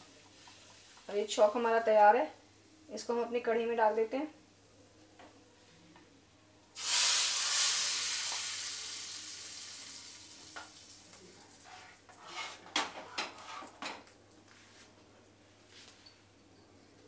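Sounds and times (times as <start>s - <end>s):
hot oil sizzling: 6.8s - 11.7s.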